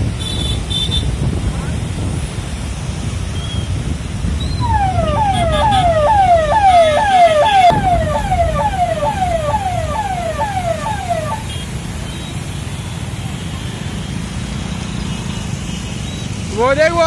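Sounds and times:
siren yelping: 4.5 - 11.5.

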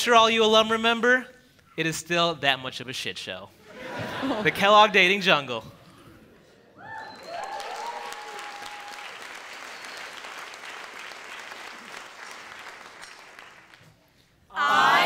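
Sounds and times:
shouted cheers: 6.8 - 9.4
audience applauding: 6.8 - 13.8.

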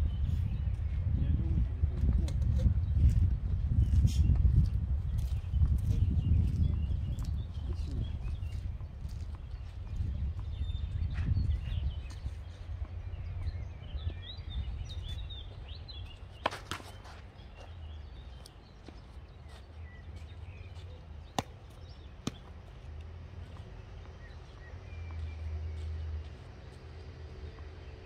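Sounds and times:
birds chirping: 0.0 - 28.0
tennis balls struck by rackets: 16.3 - 17.2, 21.3 - 22.6.

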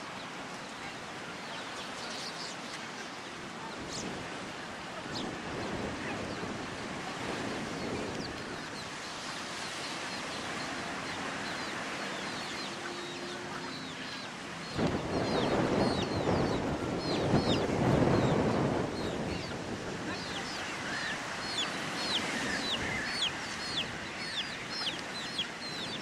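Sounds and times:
ocean surf breaking: 0.0 - 26.0
bird chirps: 20.2 - 26.0.

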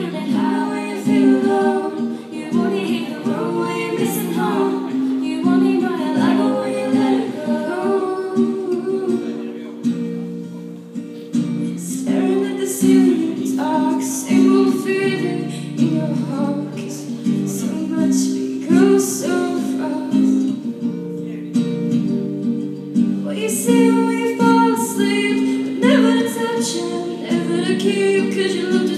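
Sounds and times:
girls singing pop ballad: 0.0 - 9.7, 11.6 - 20.6, 23.2 - 28.9
acoustic guitar strumming: 0.0 - 28.9.

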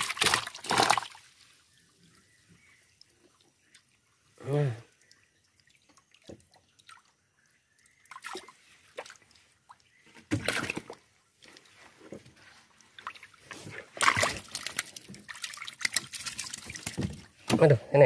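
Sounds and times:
water sloshing in boat: 8.1 - 18.0.

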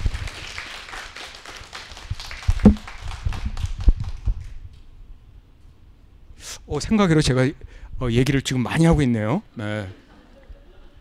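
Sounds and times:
audience applauding: 0.0 - 4.2
low thumps: 2.6 - 2.8.

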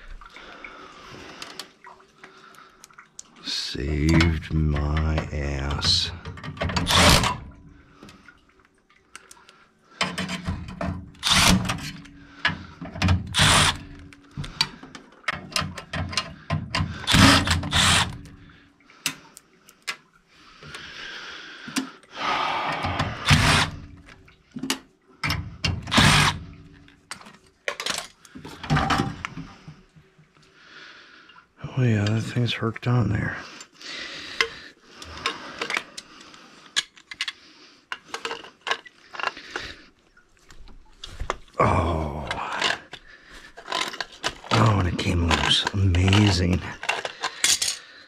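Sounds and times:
cordless drill running: 13.4 - 13.8, 17.1 - 18.2, 23.2 - 23.7, 25.9 - 26.4.

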